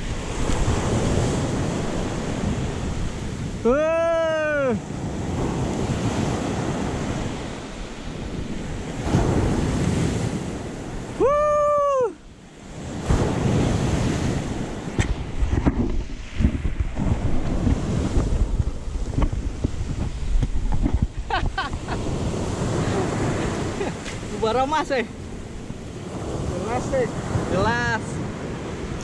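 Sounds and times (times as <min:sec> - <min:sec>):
ocean surf on shore: 0:00.0 - 0:29.0
wind buffeting microphone: 0:00.0 - 0:29.0
person's short vocal cry: 0:03.6 - 0:04.8.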